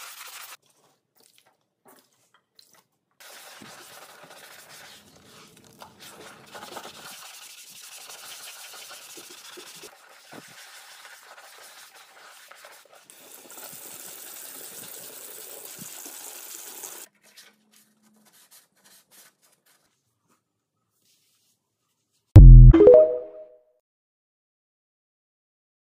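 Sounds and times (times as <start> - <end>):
sponge scrubbing a sink: 0.0 - 15.0, 17.2 - 22.3.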